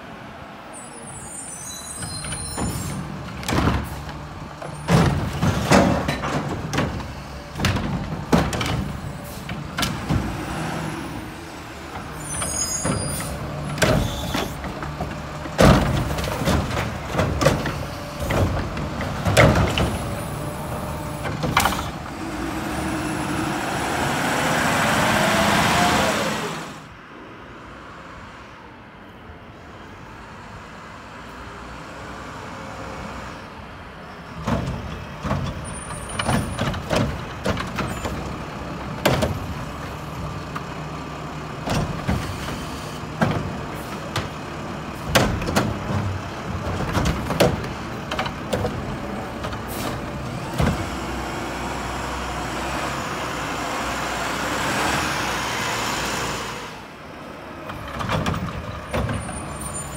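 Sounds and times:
garbage truck arm clanking: 0:02.2 - 0:10.4, 0:11.9 - 0:22.0, 0:45.0 - 0:51.0
engine revving under load: 0:17.6 - 0:26.9, 0:48.7 - 0:56.8.

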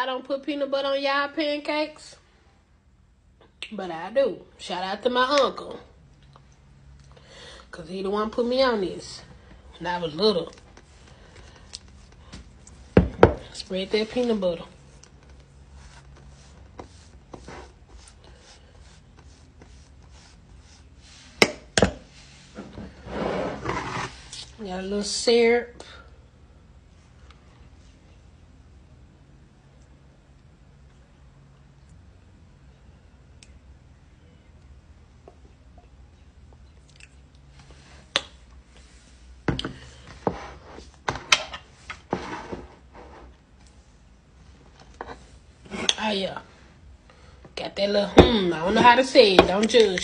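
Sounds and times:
utensil scraping peanut butter: 0:10.0 - 0:21.4.

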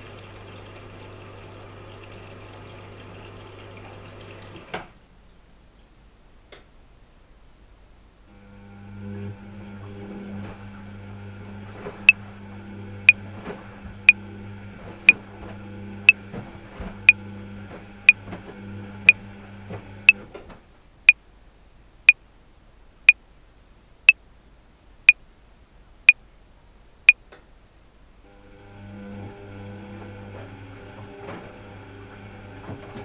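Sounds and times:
washing machine running: 0:00.0 - 0:04.9, 0:08.3 - 0:20.5, 0:28.3 - 0:33.0.

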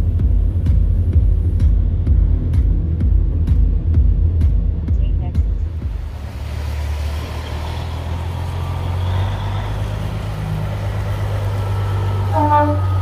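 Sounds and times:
truck diesel engine rumbling: 0:00.0 - 0:13.0
short horn toot: 0:12.3 - 0:13.0.

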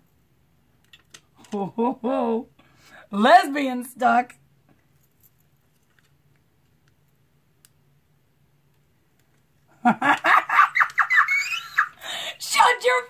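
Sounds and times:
woman exclaiming excitedly: 0:10.6 - 0:13.0.

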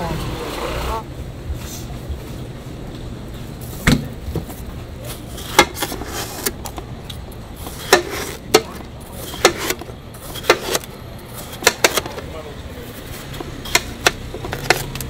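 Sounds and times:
knife cutting watermelon: 0:05.1 - 0:06.7, 0:07.6 - 0:12.2, 0:13.0 - 0:15.0
blade knocking on plastic tray: 0:11.6 - 0:12.2, 0:13.4 - 0:14.8.

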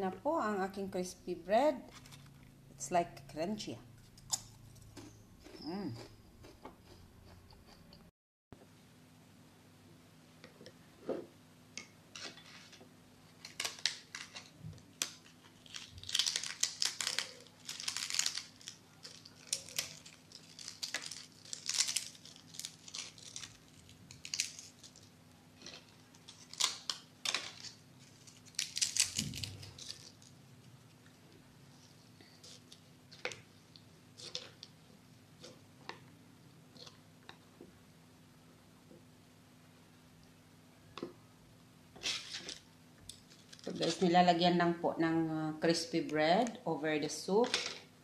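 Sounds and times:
crisp bread crackling and crunching: 0:12.2 - 0:34.8, 0:42.0 - 0:44.0.

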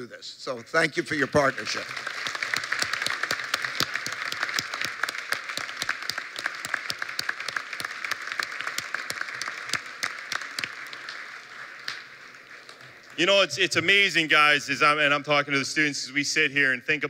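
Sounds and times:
audience applause: 0:01.0 - 0:14.0.

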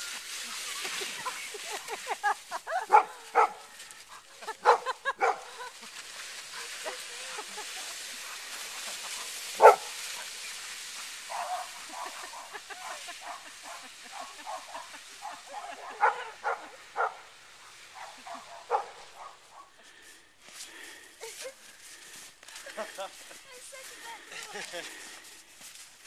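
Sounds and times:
dog barking: 0:02.9 - 0:03.6, 0:04.6 - 0:05.5, 0:09.6 - 0:09.9, 0:11.3 - 0:12.5, 0:13.2 - 0:17.2, 0:18.0 - 0:19.7.

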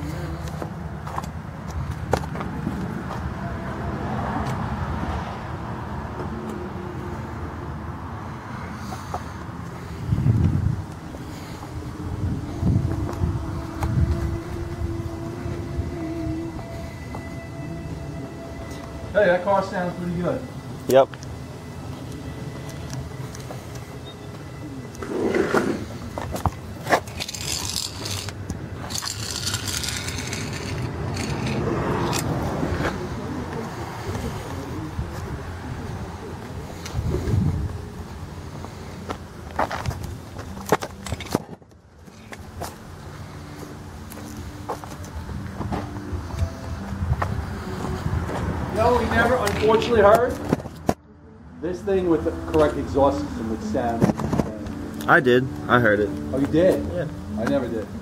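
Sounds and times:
wind on microphone: 0:10.0 - 0:17.0, 0:30.6 - 0:38.1, 0:45.2 - 0:49.1
scraping and sharp clicks: 0:26.9 - 0:32.3.

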